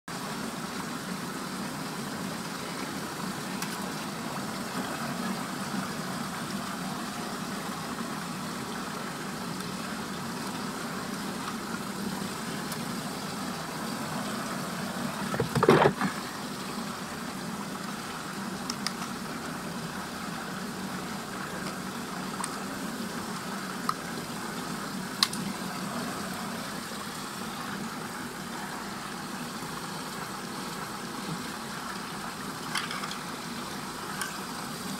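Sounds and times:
water rushing down a drain: 0.1 - 34.9.

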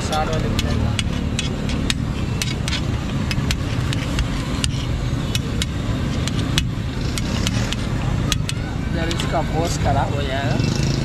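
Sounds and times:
metal utensils clinking: 0.0 - 6.6
steady low rumble: 0.0 - 10.6.

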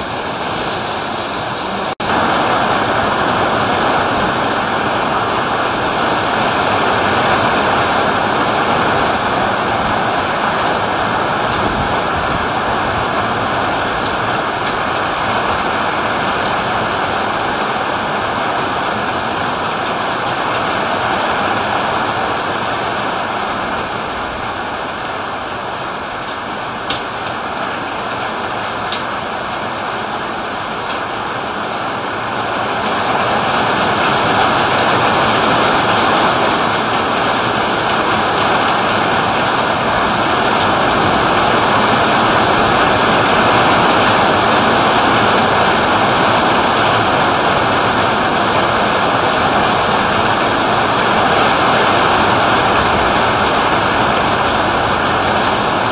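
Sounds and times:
heavy rain pouring: 0.0 - 55.9.

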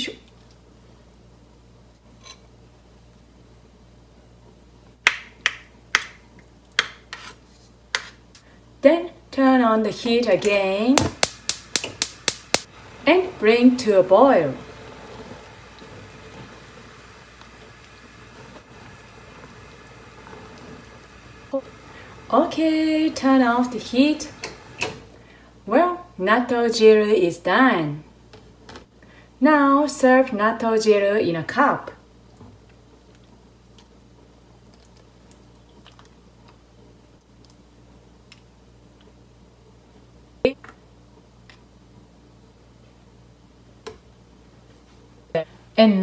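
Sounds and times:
steady low hum: 7.7 - 26.2
gas burner hiss: 10.4 - 25.3
soup bubbling: 11.1 - 24.8, 32.2 - 38.4.

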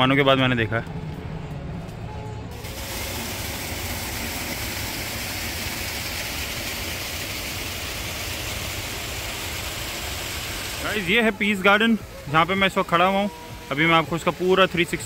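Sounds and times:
even hiss: 2.5 - 15.0.

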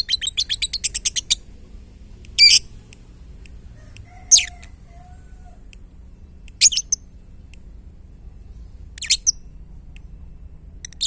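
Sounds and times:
lovebird shrill calls: 0.0 - 1.5, 2.4 - 2.7, 4.1 - 4.8, 6.6 - 7.0, 8.9 - 9.5.

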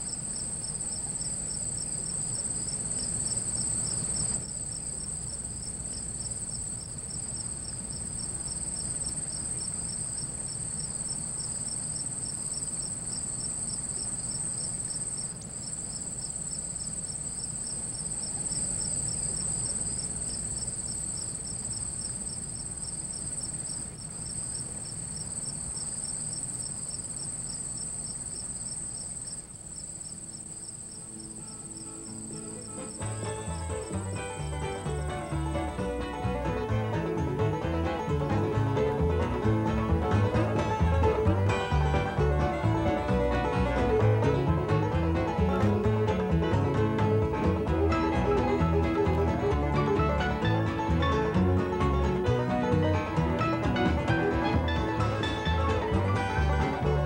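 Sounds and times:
crickets trilling: 0.0 - 37.0
pulsing insect chirp: 0.0 - 44.1
low steady hum: 0.0 - 57.0.

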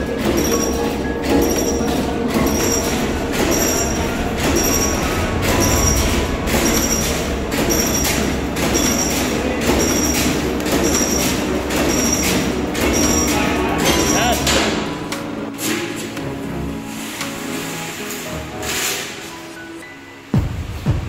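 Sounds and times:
machine rumble: 0.0 - 15.6.

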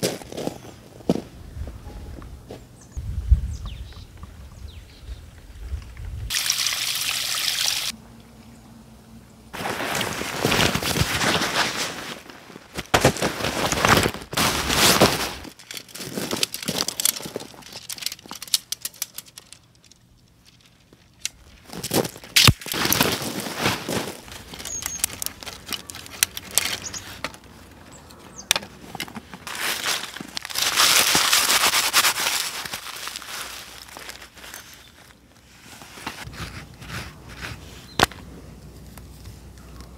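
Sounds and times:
boots crunching on gravel: 0.0 - 1.3, 9.6 - 18.0, 21.6 - 27.7, 29.0 - 37.2
dry leaves crunching in hands: 9.6 - 19.5, 21.0 - 39.9
nylon gear rustling: 9.6 - 38.1
sharp crack: 22.3 - 23.0.

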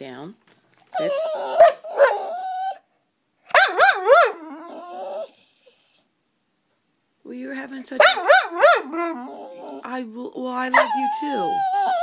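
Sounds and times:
dog whining vocalizations: 0.8 - 2.9, 3.5 - 6.1, 8.0 - 12.0.

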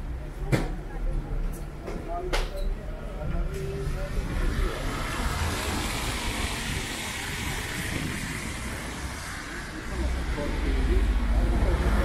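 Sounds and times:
tyres hissing on wet road: 3.8 - 12.0.

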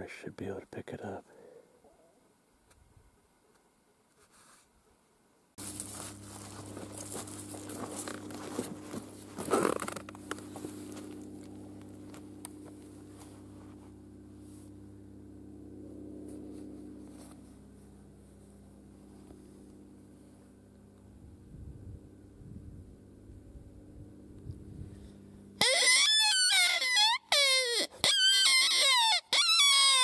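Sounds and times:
low steady hum: 5.6 - 25.6.

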